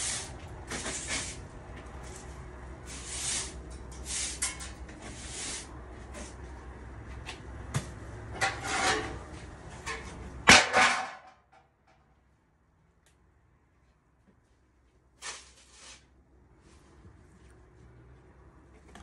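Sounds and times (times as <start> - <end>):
scraping and knocking handling noises: 7.2 - 11.6.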